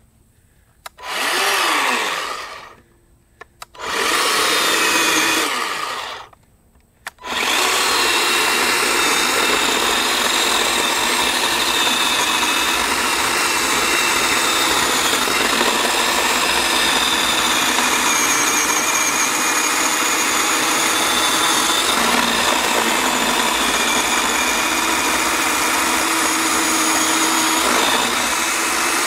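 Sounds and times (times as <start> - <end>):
small click: 0.8 - 1.0
chainsaw cutting log: 1.0 - 2.8, 3.7 - 6.3, 7.1 - 29.0
electric chainsaw motor: 1.0 - 2.8, 3.7 - 6.4, 7.1 - 29.0.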